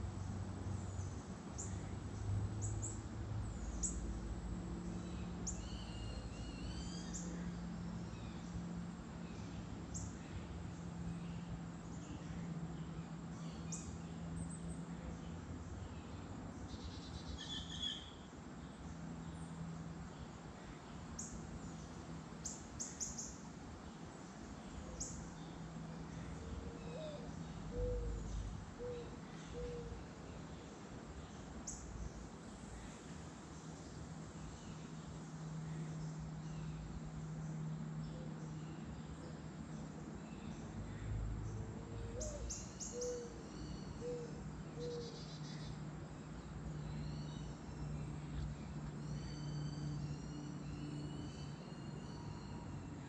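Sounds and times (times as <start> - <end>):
small birds chipping and trilling: 0.0 - 52.8
bird hooting coos: 26.5 - 30.0, 41.9 - 45.3.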